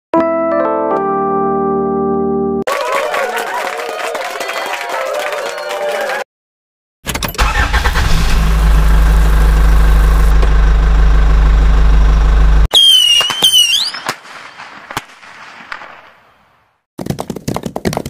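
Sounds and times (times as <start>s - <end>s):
engine running: 7.4s - 12.7s.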